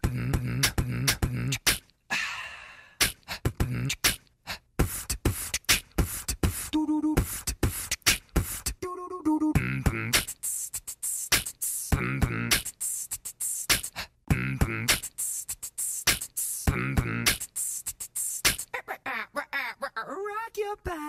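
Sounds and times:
beatboxing: 0:00.0 - 0:01.9, 0:03.0 - 0:21.0
short pitched vocal notes: 0:06.6 - 0:20.0.

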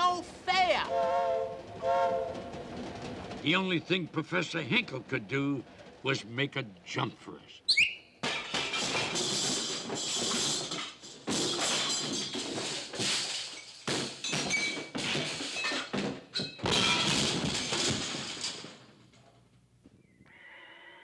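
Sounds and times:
crashes and thuds: 0:08.2 - 0:18.9.

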